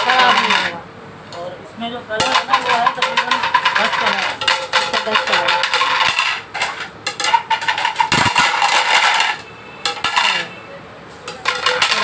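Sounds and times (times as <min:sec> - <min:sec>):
plates clattering on tile floor: 0:00.0 - 0:00.8, 0:02.2 - 0:10.6, 0:11.2 - 0:12.0.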